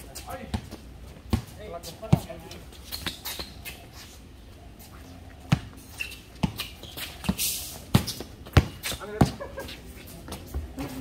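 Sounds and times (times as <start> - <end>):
shoe scuffing hiss: 5.7 - 11.0
basketball bouncing on hard court: 7.3 - 9.4.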